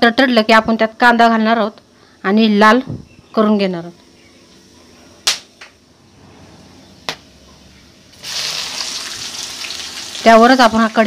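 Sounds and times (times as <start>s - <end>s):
onion sizzling in hot oil: 8.1s - 11.0s.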